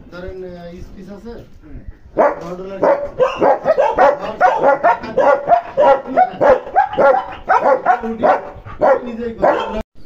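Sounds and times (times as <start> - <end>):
dogs barking: 2.2 - 9.9.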